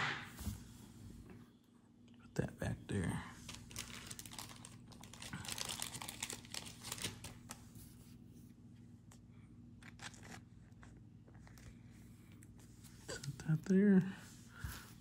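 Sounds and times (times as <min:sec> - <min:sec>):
plastic crinkling and rustling: 0:03.4 - 0:08.0.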